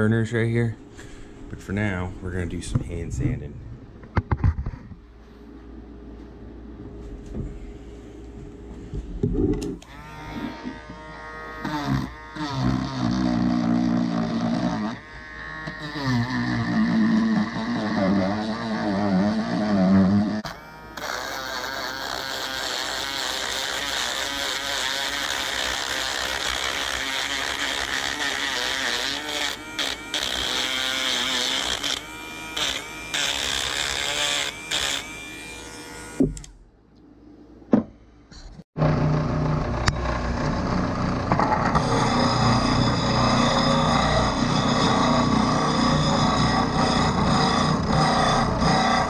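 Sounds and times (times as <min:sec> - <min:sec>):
rotary tool sanding wood: 0:09.8 - 0:36.5, 0:41.7 - 0:49.0.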